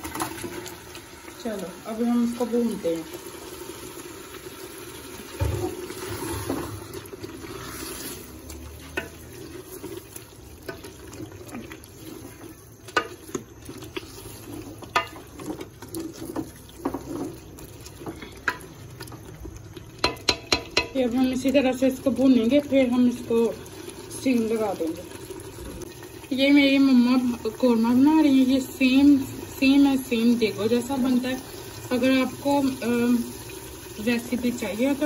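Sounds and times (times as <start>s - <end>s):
wet sizzle and bubbling: 0.0s - 35.0s
wooden spoon knocking against pot: 14.9s - 15.5s, 20.0s - 21.0s.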